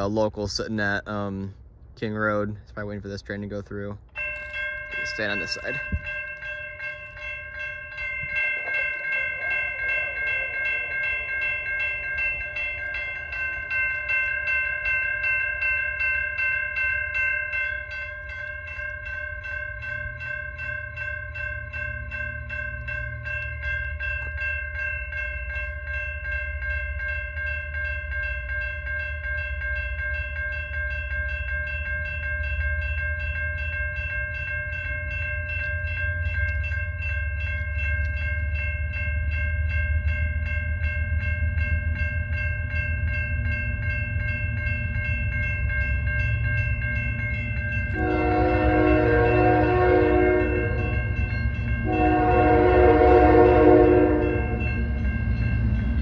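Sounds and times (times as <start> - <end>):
crossing warning bell ringing: 0.0 - 56.0
locomotive engine rumble: 32.0 - 56.0.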